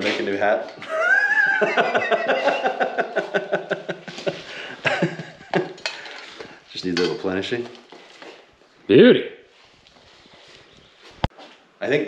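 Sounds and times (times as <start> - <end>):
voice or laughter: 0.8 - 5.8.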